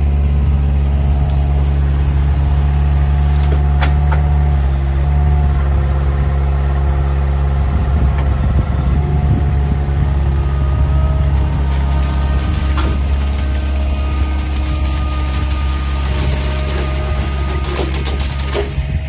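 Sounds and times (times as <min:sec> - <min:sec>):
skid steer engine running: 0:00.0 - 0:19.0.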